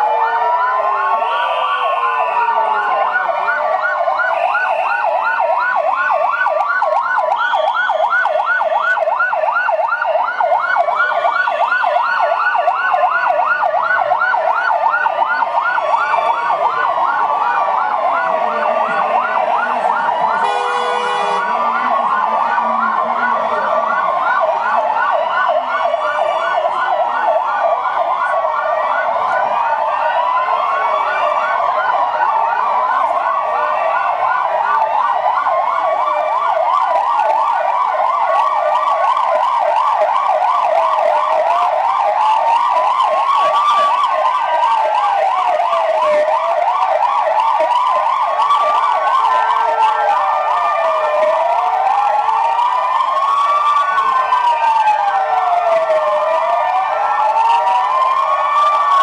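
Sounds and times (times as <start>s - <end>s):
police sirens yelping and wailing: 0.0s - 59.0s
short horn blast: 20.4s - 21.4s.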